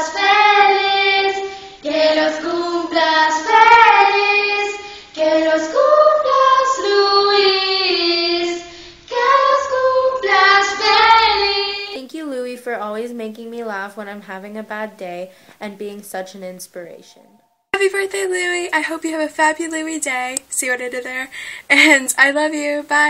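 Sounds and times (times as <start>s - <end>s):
women singing unaccompanied: 0.0s - 12.0s.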